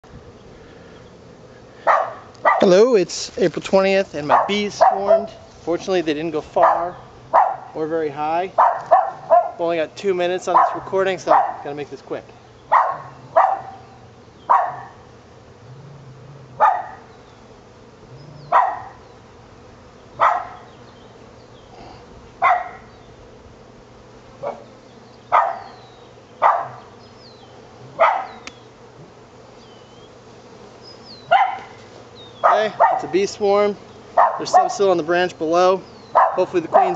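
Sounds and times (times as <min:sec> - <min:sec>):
dog barking: 0:01.8 - 0:02.7, 0:04.3 - 0:05.4, 0:06.6 - 0:07.7, 0:08.6 - 0:09.6, 0:10.5 - 0:11.7, 0:12.7 - 0:13.8, 0:14.5 - 0:15.0, 0:16.6 - 0:17.0, 0:18.5 - 0:19.0, 0:20.2 - 0:20.7, 0:22.4 - 0:22.9, 0:24.4 - 0:24.7, 0:25.3 - 0:25.8, 0:26.4 - 0:26.9, 0:28.0 - 0:28.4, 0:31.3 - 0:31.8, 0:32.4 - 0:33.1, 0:34.2 - 0:34.8, 0:36.1 - 0:36.9.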